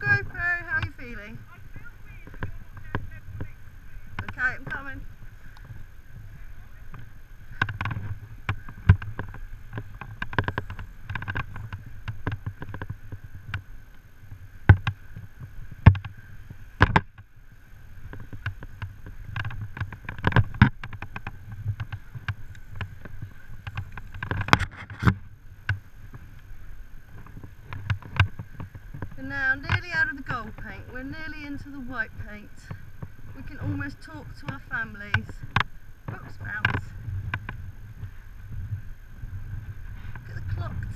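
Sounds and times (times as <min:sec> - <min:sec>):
hardware creaks clicks and knocks: 0:04.1 - 0:04.9, 0:06.8 - 0:14.0, 0:15.8 - 0:16.2, 0:16.8 - 0:17.3, 0:18.0 - 0:26.5, 0:27.1 - 0:31.3, 0:32.6 - 0:38.2.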